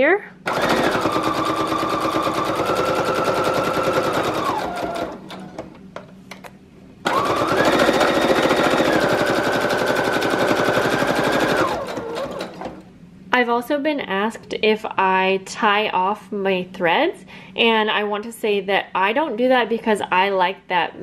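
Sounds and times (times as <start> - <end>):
sewing machine stitching: 0.5 - 5.8, 7.1 - 12.9.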